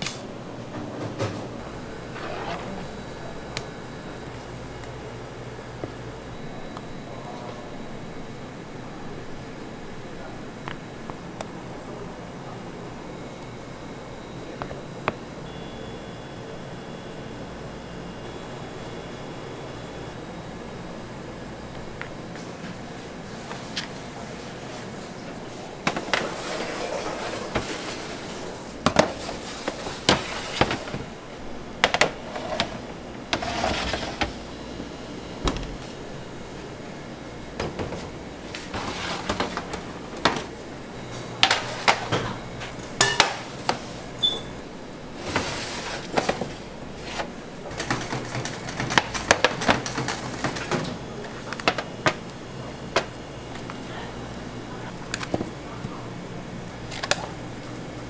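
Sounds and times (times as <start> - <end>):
machine hum: 0.3 - 58.0
metal pans clanking on trays: 43.0 - 43.5.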